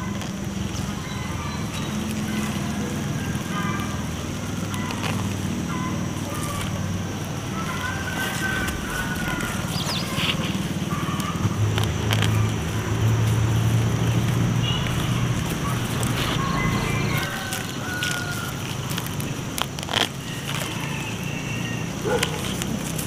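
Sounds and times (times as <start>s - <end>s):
motor humming: 0.0s - 23.0s.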